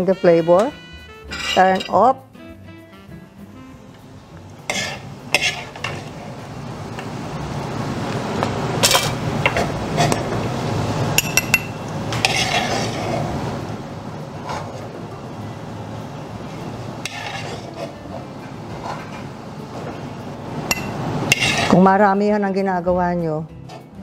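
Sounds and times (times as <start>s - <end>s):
metal spoon scraping a wok: 0.4s - 2.1s, 4.7s - 6.3s, 12.1s - 13.4s, 17.0s - 18.1s, 20.7s - 21.9s.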